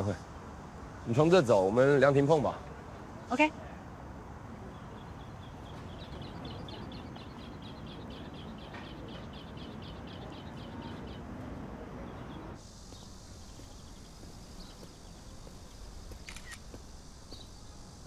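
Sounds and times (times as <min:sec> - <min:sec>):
small bird chirping: 0:04.7 - 0:11.3, 0:12.0 - 0:17.7.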